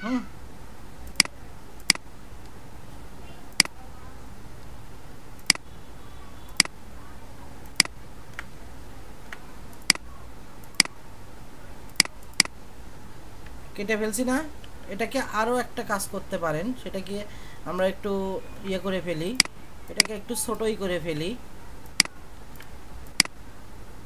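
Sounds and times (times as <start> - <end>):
steady low hum: 0.0 - 24.0
computer mouse clicks: 1.0 - 2.6, 3.5 - 3.8, 6.5 - 6.8, 7.6 - 8.5, 9.2 - 11.0, 11.9 - 12.6, 21.8 - 23.4.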